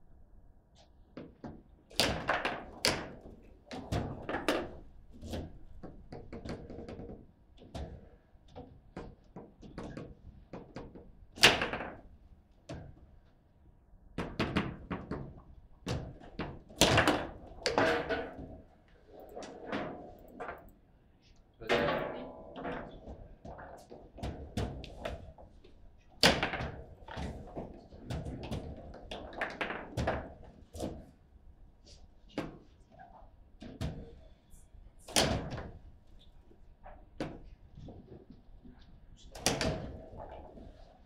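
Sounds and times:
foosball figures clacking ball: 1.2 - 8.0, 14.2 - 20.8, 21.6 - 25.5, 26.2 - 31.0.

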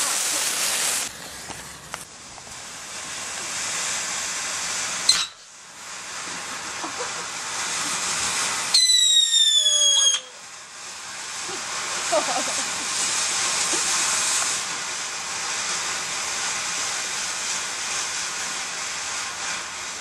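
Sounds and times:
firework hissing: 0.0 - 20.0
shrill firework whistle: 5.0 - 5.5, 8.7 - 10.4.

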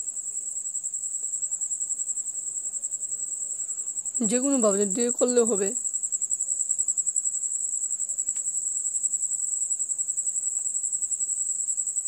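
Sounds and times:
insect trilling: 0.6 - 12.0.

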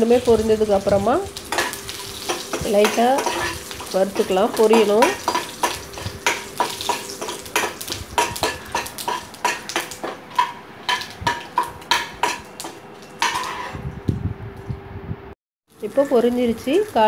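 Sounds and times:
ladle scraping metal pan: 1.5 - 13.8.

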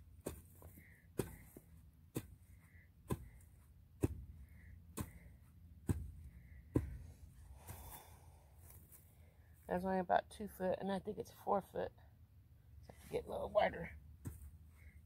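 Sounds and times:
hoe chopping into ground: 0.2 - 2.4, 3.1 - 4.4, 5.8 - 7.1.

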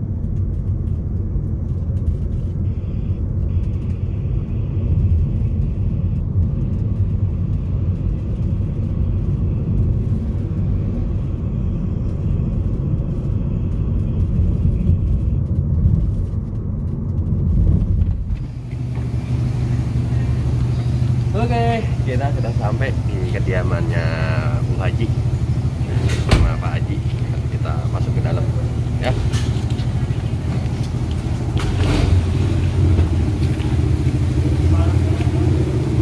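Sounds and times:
car cabin engine and road noise: 0.0 - 36.0.

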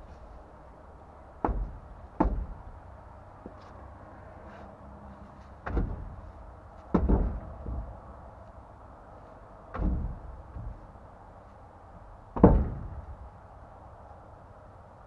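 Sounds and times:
heavy blows on a tire: 1.4 - 2.8, 5.6 - 8.0, 9.7 - 10.8, 12.3 - 13.1.

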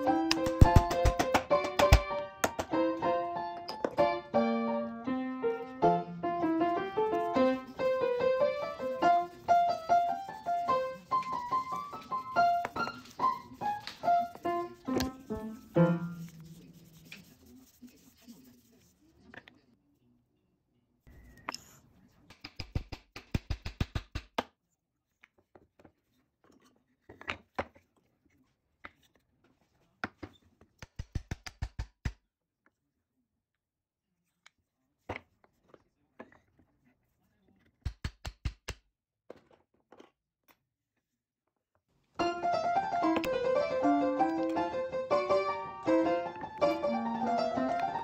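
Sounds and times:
piano music: 0.0 - 16.6, 42.2 - 48.0
sharp wooden taps: 0.3 - 2.8.

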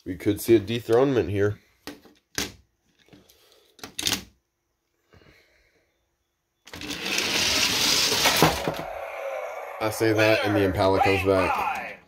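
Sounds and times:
toy cars rolling on plastic track: 6.7 - 8.8.

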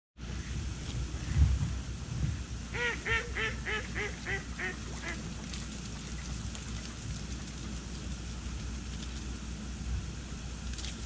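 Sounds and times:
steady low rumble: 0.2 - 11.0
duck quacking: 2.7 - 5.2.

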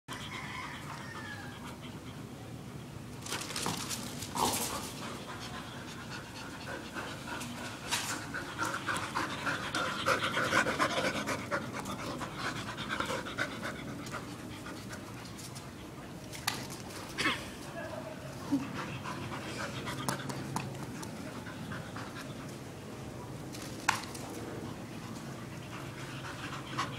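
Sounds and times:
dogs panting fast and hard: 4.8 - 15.4, 18.6 - 22.7, 24.4 - 26.9.

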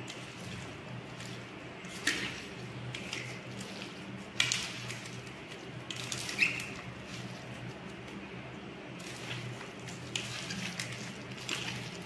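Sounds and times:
hand squishing food: 0.0 - 12.0
steady low hum: 0.0 - 12.0.

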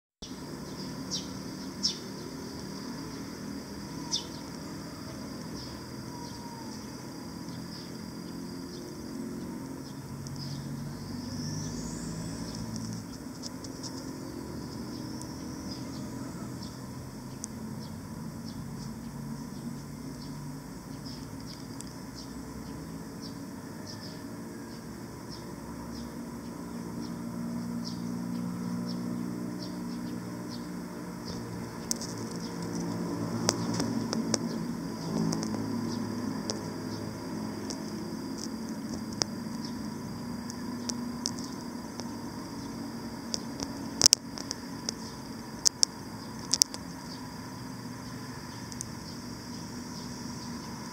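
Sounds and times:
high-pitched chirps and ticks: 0.2 - 23.4, 27.8 - 50.9
steady low hum: 0.2 - 50.9
rising high chirp: 10.4 - 13.0
sharp clicks: 35.1 - 35.7, 37.6 - 39.7, 43.3 - 46.9.

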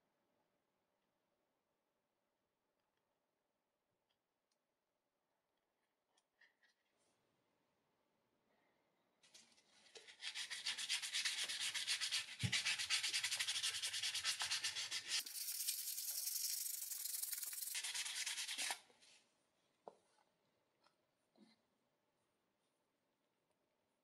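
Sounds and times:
sandpaper scratching on metal: 10.2 - 18.8.

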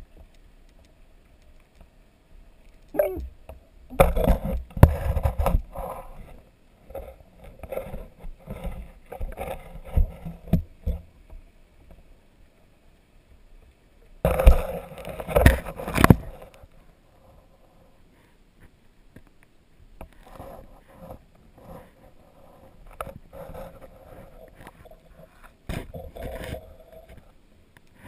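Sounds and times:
muffled underwater knocks and clicks: 2.7 - 12.0, 14.3 - 16.6.

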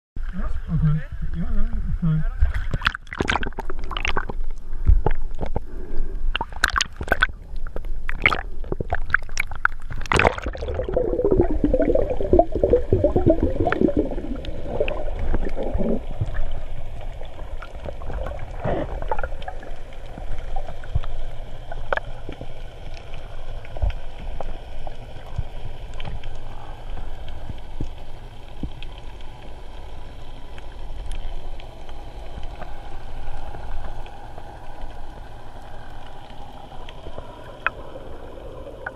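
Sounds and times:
low underwater rumble: 0.2 - 38.9
water splashing: 2.4 - 38.9
bubbles gurgling: 2.7 - 22.5, 36.4 - 38.9.

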